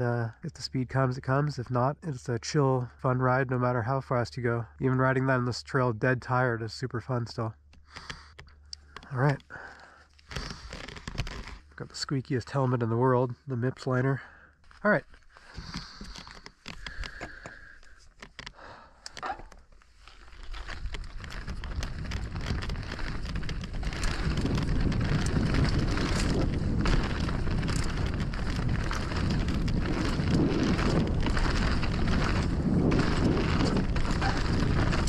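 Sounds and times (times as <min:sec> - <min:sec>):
bike clicks: 0:07.6 - 0:11.7, 0:15.1 - 0:35.0
tyres riding over loose dirt: 0:13.8 - 0:35.0.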